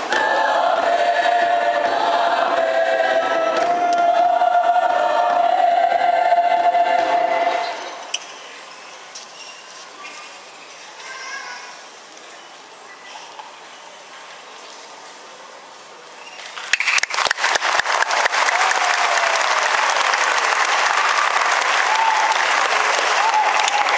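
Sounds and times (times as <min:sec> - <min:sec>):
audience applauding: 0:16.6 - 0:23.9.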